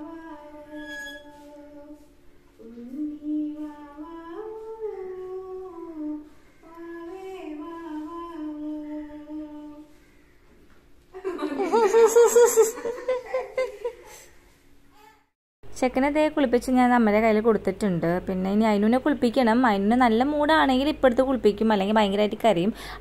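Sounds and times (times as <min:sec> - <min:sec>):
woman humming a slow melody: 0:00.0 - 0:09.9.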